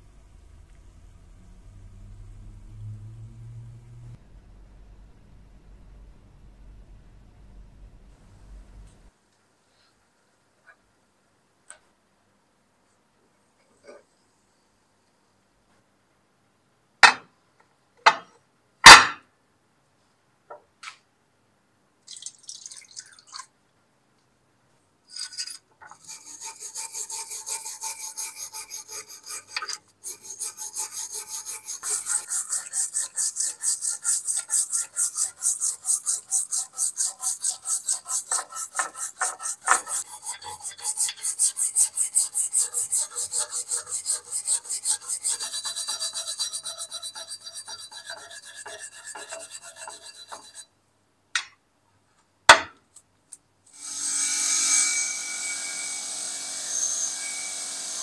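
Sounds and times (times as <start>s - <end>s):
wire brush scrubbing metal: 25.1s - 50.7s.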